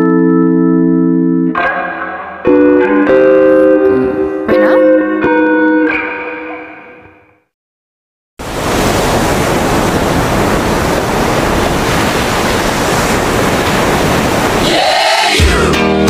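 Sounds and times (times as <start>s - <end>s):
loud steady rushing noise: 8.4s - 15.7s.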